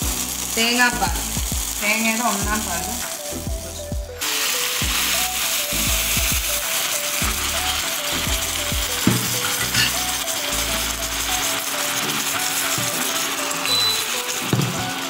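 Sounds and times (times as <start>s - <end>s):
background music melody: 0.0s - 15.0s
coconut milk sizzling in a pan: 0.0s - 15.0s.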